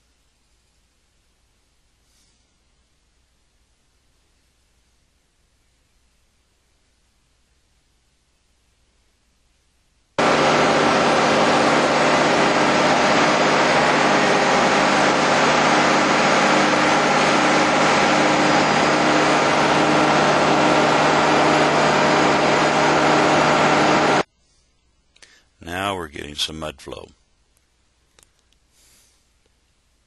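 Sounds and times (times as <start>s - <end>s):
drilling rig engine drone: 10.2s - 24.3s.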